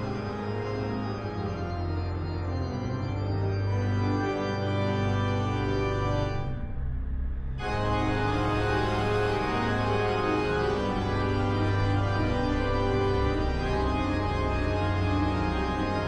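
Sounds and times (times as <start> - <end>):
organ-like keyboard chords: 0.0 - 6.7, 7.6 - 16.0.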